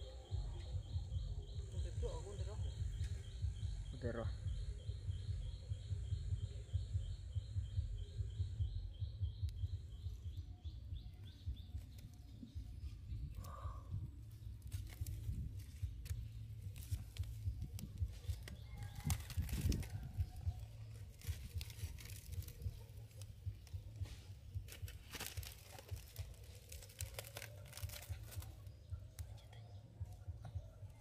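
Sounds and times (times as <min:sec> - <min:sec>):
low steady rumble: 0:00.0 - 0:31.0
aluminium foil crinkling: 0:14.6 - 0:28.7.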